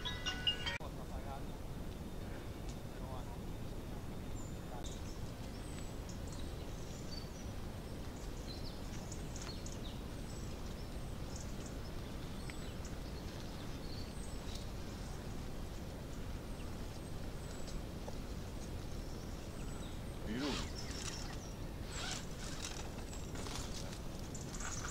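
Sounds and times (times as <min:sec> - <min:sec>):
small birds chirping: 0:00.0 - 0:24.9.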